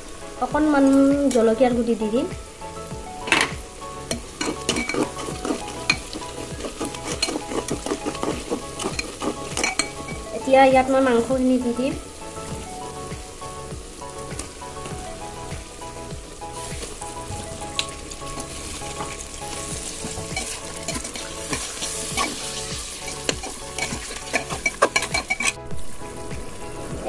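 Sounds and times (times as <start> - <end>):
chicken sizzling in hot oil: 0.0 - 26.8
metal ladle scraping a pot: 4.1 - 10.3, 16.6 - 25.7.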